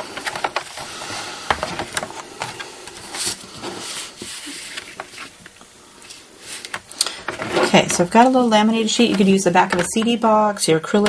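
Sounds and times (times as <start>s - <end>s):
craft supplies rustling: 0.0s - 10.2s.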